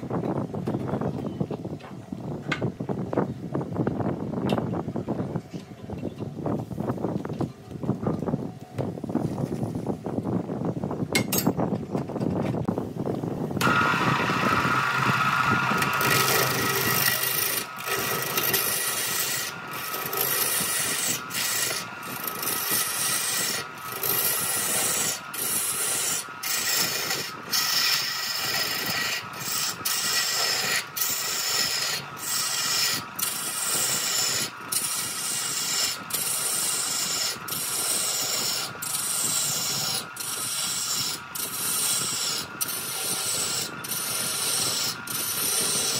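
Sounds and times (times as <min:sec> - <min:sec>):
tool rubbing spinning wood: 0:13.6 - 0:45.9
wood lathe whining: 0:13.6 - 0:45.9.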